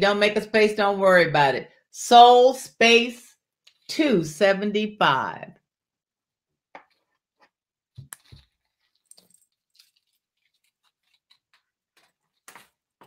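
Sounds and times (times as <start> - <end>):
soft rustles: 8.2 - 13.0.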